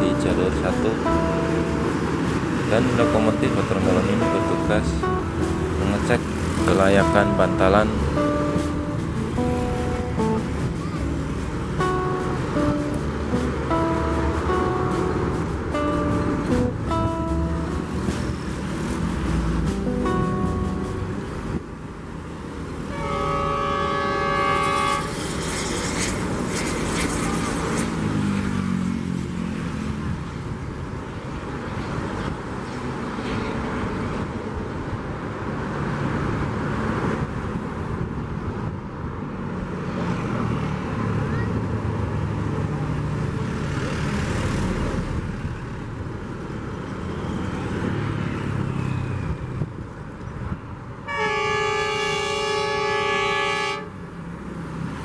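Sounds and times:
diesel locomotive engine: 0.0 - 28.5, 40.8 - 55.0
locomotive horn blast: 22.8 - 25.7, 51.0 - 54.0.

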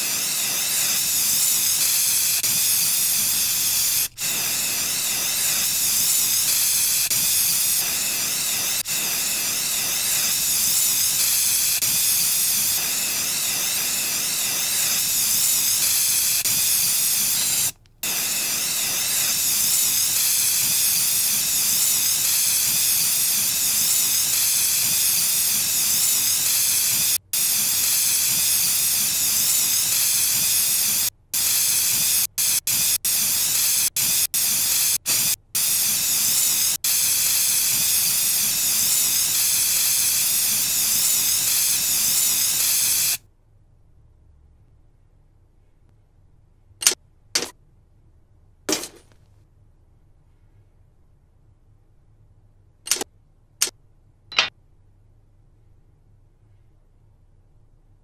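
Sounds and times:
spray paint can hissing: 0.0 - 43.2.

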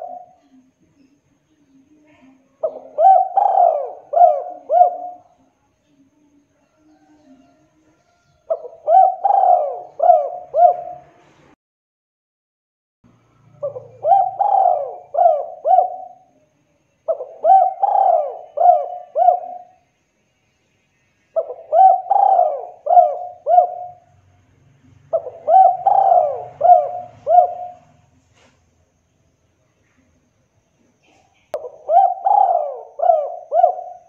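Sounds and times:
dove cooing: 0.0 - 0.7, 2.1 - 5.4, 8.4 - 11.2, 13.6 - 16.4, 17.1 - 19.8, 21.4 - 24.2, 24.9 - 28.2, 31.0 - 34.0.

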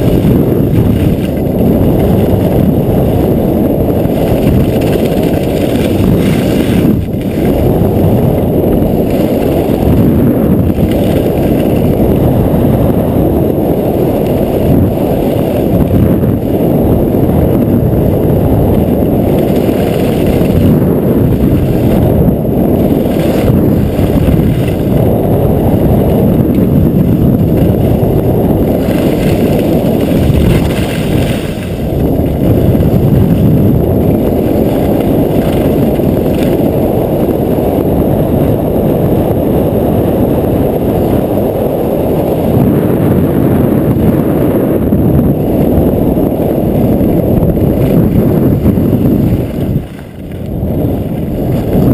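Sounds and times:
wind buffeting camera microphone: 0.0 - 51.9
skis hissing over snow: 28.7 - 31.8.

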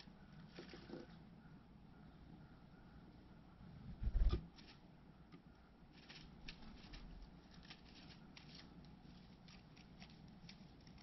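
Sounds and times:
bird rustling dry twigs and leaves: 0.0 - 1.2, 4.5 - 4.8, 5.9 - 11.0.

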